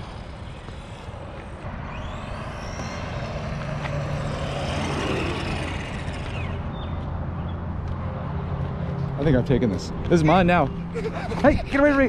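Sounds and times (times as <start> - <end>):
rc truck electric motor whining: 0.0 - 7.0.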